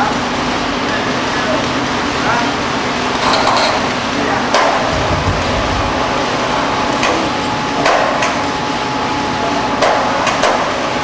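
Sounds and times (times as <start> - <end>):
workshop machinery noise: 0.0 - 11.0.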